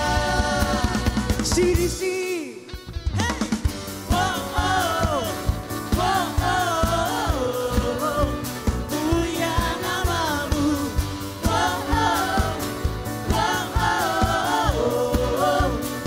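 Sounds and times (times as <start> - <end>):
man singing: 0.0 - 11.2
bass guitar: 0.0 - 16.0
drums: 0.0 - 16.0.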